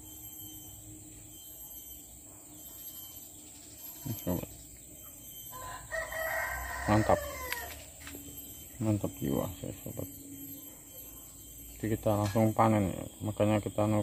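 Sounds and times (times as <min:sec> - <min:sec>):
rooster crowing: 0:05.2 - 0:08.7.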